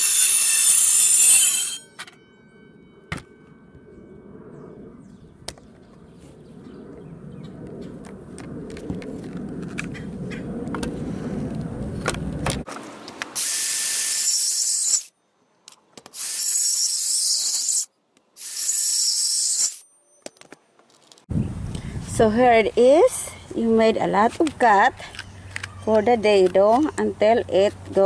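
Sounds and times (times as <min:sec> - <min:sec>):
circular saw cutting wood: 0:00.0 - 0:02.0, 0:13.3 - 0:15.2, 0:16.2 - 0:19.9
low rumble: 0:02.6 - 0:12.7.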